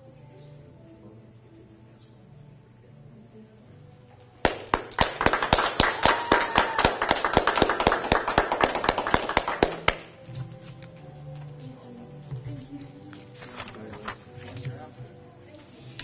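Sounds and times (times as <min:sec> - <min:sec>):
small group clapping: 0:04.4 - 0:10.2.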